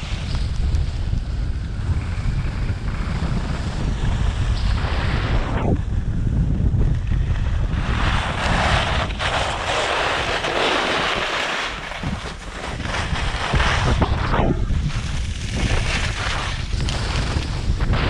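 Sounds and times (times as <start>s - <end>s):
wind buffeting microphone: 0.0s - 18.0s
skis scraping snow: 7.0s - 18.0s.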